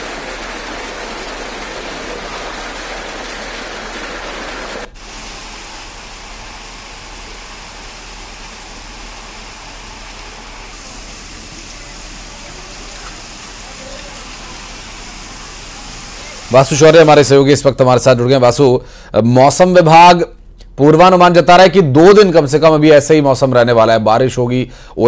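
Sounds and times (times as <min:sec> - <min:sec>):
heavy rain and hail falling: 0:00.0 - 0:16.8.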